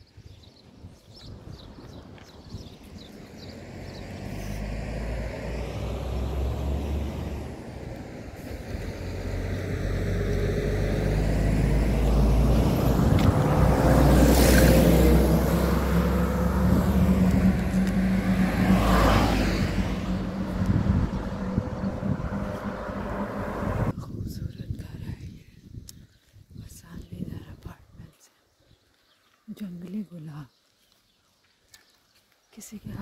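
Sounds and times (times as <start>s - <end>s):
low engine hum: 2.2s - 24.0s
vehicles rushing past: 2.2s - 24.0s.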